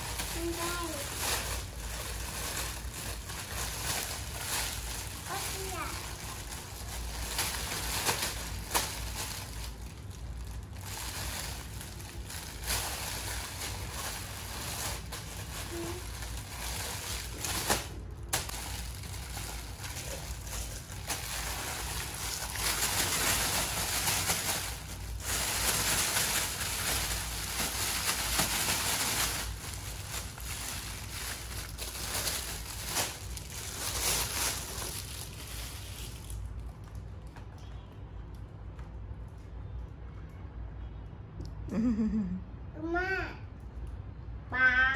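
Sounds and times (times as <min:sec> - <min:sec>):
plastic wrapping crinkling: 0:00.0 - 0:39.9.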